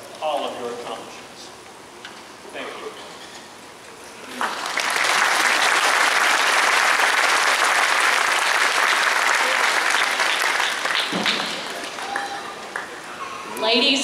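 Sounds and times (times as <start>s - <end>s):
audience applauding: 4.2s - 13.1s.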